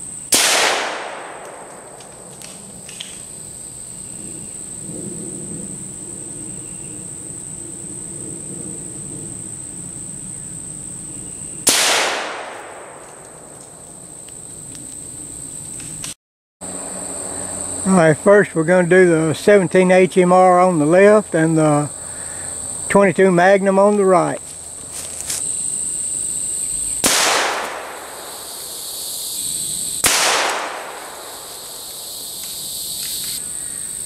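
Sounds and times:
crickets chirring: 0.0 - 34.0
rifle shots with echo: 0.3 - 2.3, 11.7 - 13.5, 27.0 - 28.8, 30.0 - 32.0.

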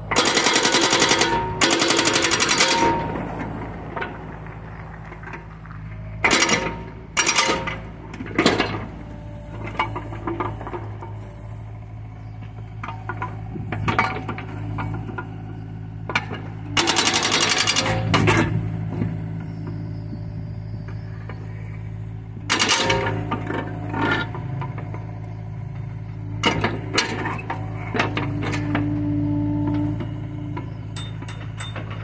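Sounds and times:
hydraulic breaker hammering: 0.0 - 4.2, 6.2 - 11.4, 16.1 - 20.0, 22.4 - 32.0
diesel engine running: 0.0 - 32.0.

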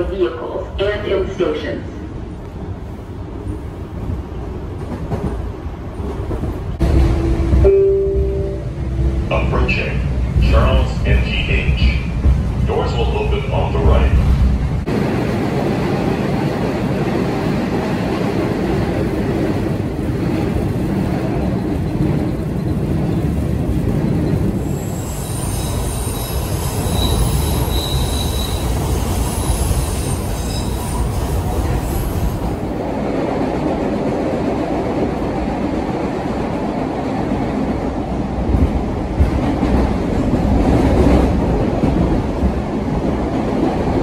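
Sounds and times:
subway wheels rumbling on rail: 0.0 - 44.0
steel wheels squealing: 24.6 - 32.5.

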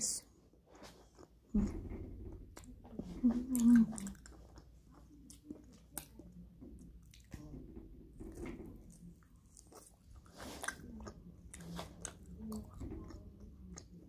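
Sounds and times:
chewing with wet mouth noises: 0.6 - 1.6, 2.5 - 7.5, 8.8 - 14.0.

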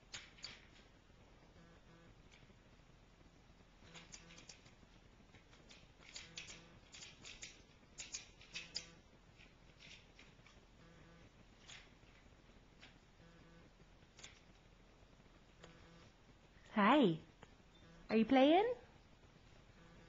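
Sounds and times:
plastic toy clicking and rattling: 3.9 - 4.7, 5.3 - 10.3.

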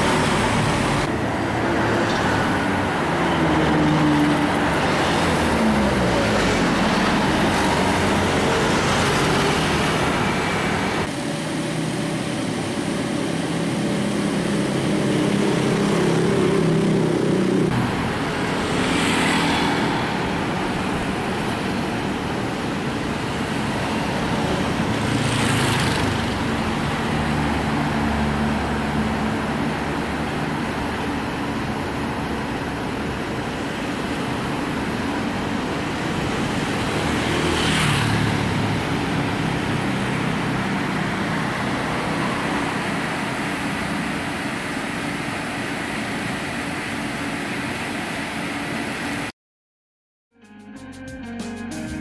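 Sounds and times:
street traffic: 0.0 - 49.3
vehicle passing with whoosh: 13.9 - 30.8, 36.0 - 44.3.

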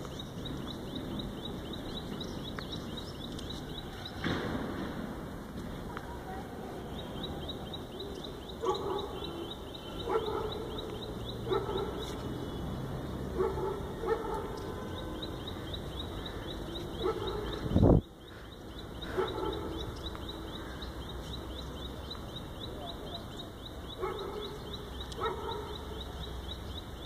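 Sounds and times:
dog barking: 8.6 - 10.8, 11.4 - 12.2, 13.4 - 14.7, 17.0 - 17.6, 19.1 - 19.8, 24.0 - 24.6, 25.2 - 25.8.

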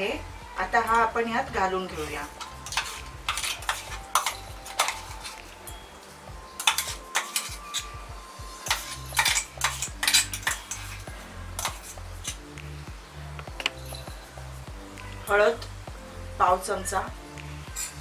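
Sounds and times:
light background music: 0.0 - 18.0
spoon scraping metal jar: 2.0 - 5.5, 6.6 - 8.0, 8.6 - 12.4, 17.7 - 18.0.

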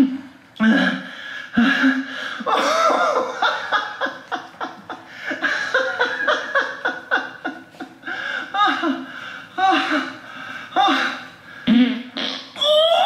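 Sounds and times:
person laughing: 1.6 - 10.2.

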